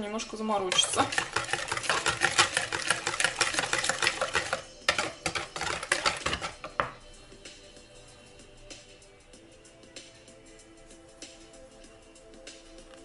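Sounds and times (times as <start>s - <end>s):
whisk clicking against bowl: 0.7s - 6.9s.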